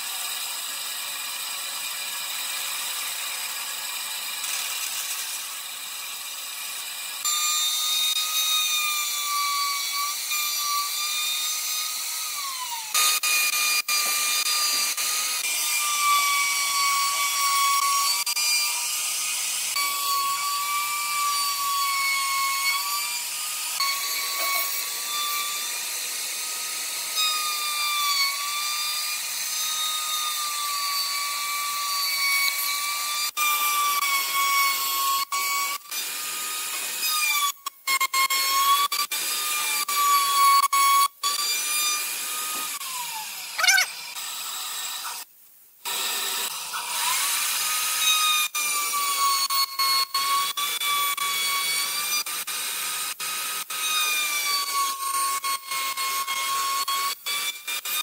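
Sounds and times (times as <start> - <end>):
power tool motor whine: 0.0 - 37.0.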